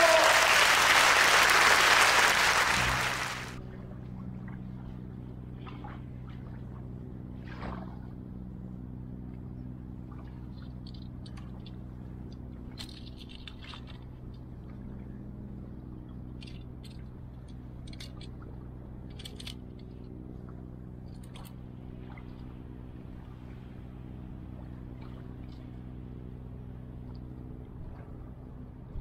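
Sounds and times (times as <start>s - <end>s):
low engine drone: 0.0s - 29.0s
fishing tackle clicks and scrapes: 10.7s - 14.4s, 16.3s - 20.0s.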